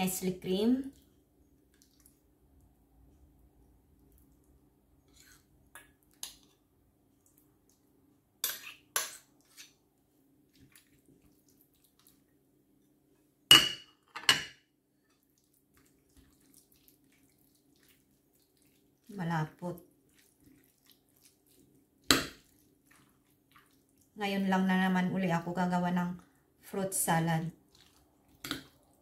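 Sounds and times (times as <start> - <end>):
metal spoon clinking on dishes: 8.4 - 9.8.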